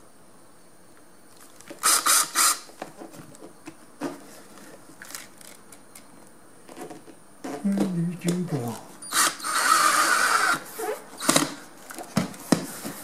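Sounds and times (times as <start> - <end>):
cordless drill driving screw: 1.8 - 2.6, 9.0 - 10.6.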